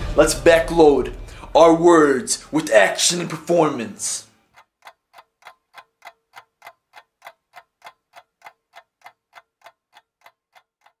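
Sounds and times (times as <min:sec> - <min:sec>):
clock ticking: 0:01.5 - 0:11.0.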